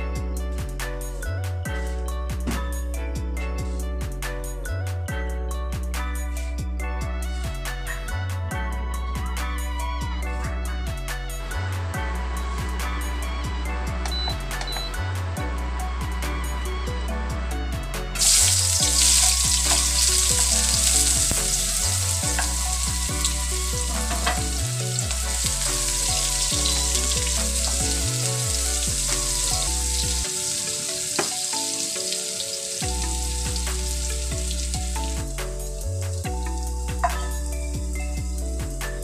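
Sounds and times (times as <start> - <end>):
background music: 0.0 - 39.0
onions sizzling in hot oil: 18.2 - 35.4.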